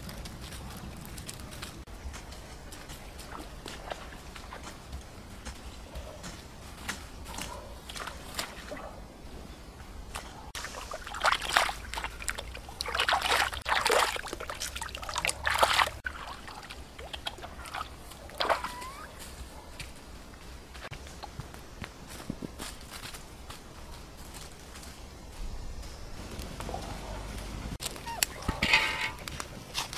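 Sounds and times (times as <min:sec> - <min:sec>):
footsteps through grass: 0:00.0 - 0:08.8, 0:10.2 - 0:28.6
hands splashing in water: 0:10.6 - 0:18.8.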